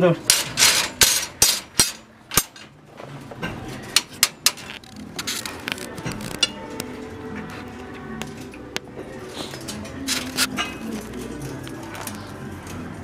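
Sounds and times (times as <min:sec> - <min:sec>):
steel rebar clanking: 0:00.3 - 0:02.7.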